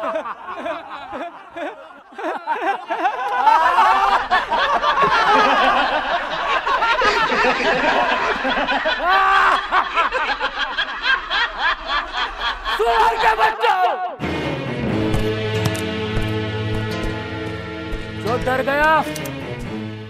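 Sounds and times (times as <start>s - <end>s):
men laughing loudly: 0.0s - 14.2s.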